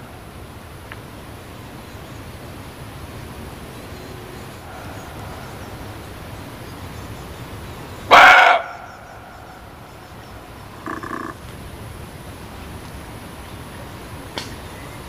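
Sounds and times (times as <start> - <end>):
steady background hiss: 0.0 - 15.0
muntjac deer barking: 8.0 - 11.4.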